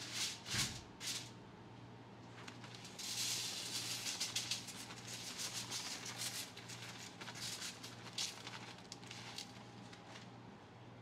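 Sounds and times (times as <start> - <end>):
sugar hissing on foil: 0.0 - 1.3, 2.4 - 10.2
plastic bag crinkling: 2.3 - 10.4.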